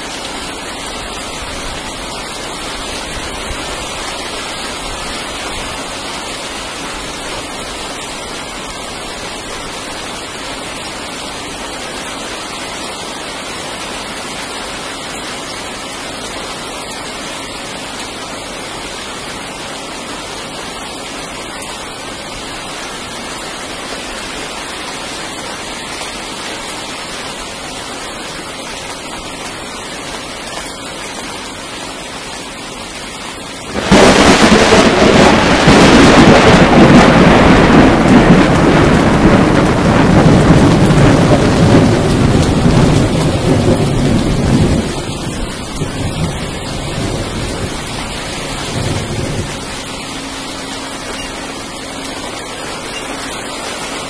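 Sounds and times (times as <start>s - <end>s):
rain hissing: 0.0s - 54.0s
thunderclap rumbling: 33.7s - 50.5s.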